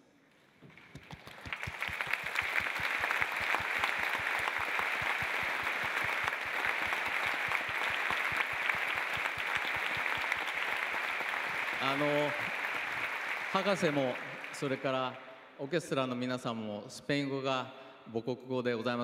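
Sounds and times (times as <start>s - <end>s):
audience applause: 0.7s - 15.2s.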